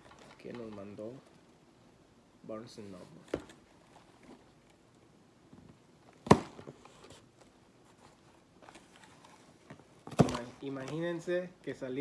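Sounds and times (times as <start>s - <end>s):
cardboard rustling: 6.2s - 11.2s.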